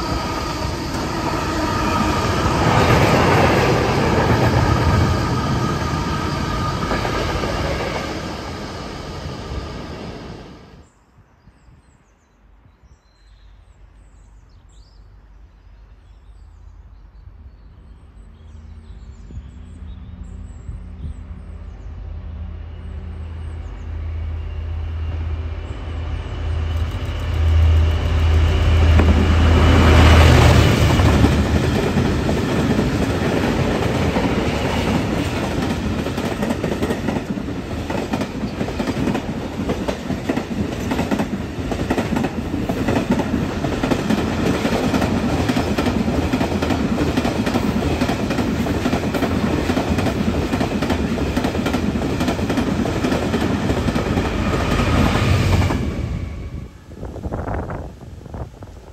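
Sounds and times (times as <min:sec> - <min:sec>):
train wheels clattering over rails: 0:00.0 - 0:10.3, 0:26.8 - 0:56.0
diesel locomotive engine throb: 0:00.0 - 0:10.8, 0:20.0 - 0:57.4.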